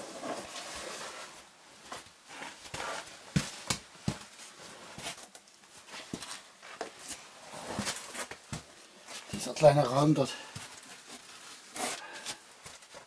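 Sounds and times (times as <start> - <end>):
clothing scraping on rock: 5.9 - 8.5.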